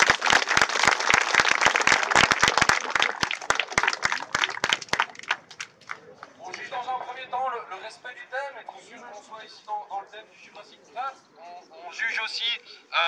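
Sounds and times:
crowd applauding: 0:00.0 - 0:06.7.

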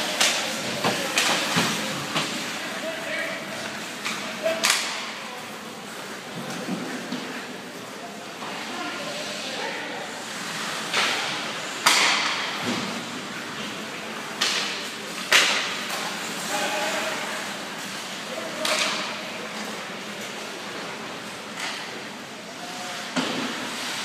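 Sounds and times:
players' voices: 0:00.0 - 0:23.6
stick hitting puck: 0:11.8 - 0:12.6.

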